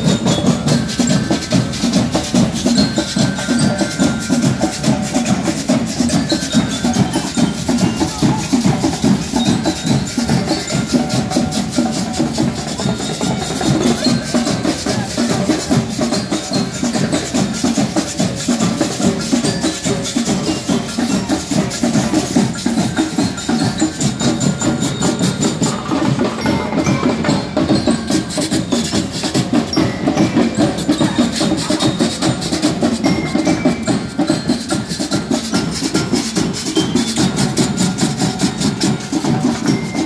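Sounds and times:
marching drums and percussion: 0:00.0 - 0:40.0
pitched metal percussion: 0:00.0 - 0:40.0.

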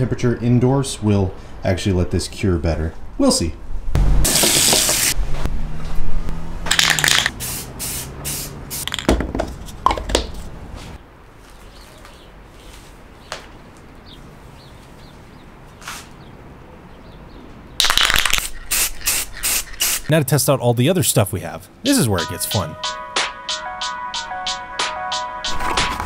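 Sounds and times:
aerosol spray can hissing: 0:04.3 - 0:05.2, 0:07.0 - 0:09.0, 0:18.2 - 0:20.1.

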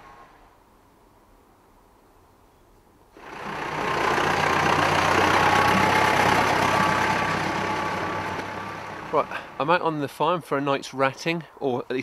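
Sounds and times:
tractor engine driving past: 0:03.2 - 0:10.2.

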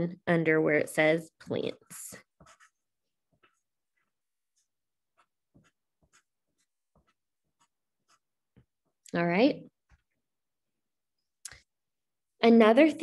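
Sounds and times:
pencil scratching on paper: 0:01.2 - 0:09.0.

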